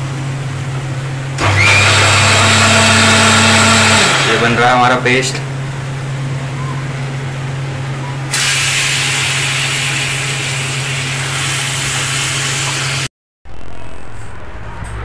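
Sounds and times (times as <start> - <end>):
steady low hum: 0.0 - 1.4, 4.3 - 8.4
chicken sizzling in hot oil: 8.3 - 13.1.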